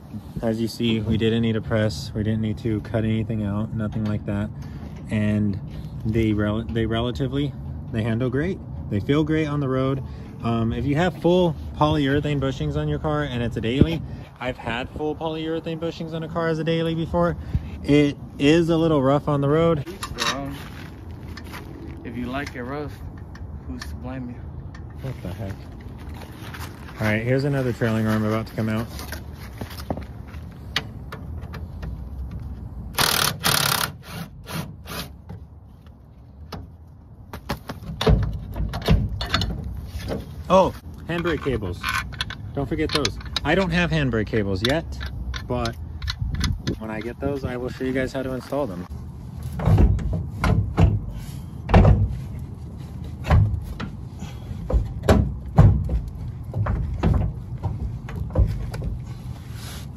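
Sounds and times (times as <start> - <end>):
impact wrench bursts: 32.9 - 35.2
metal clunks and knocks: 37.7 - 40.3, 49.5 - 52.2, 53.2 - 59.0.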